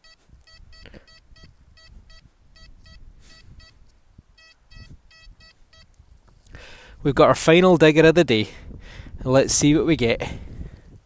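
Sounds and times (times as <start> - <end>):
metal detector beeps: 0.0 - 6.0
wind rumble on microphone: 0.2 - 11.0.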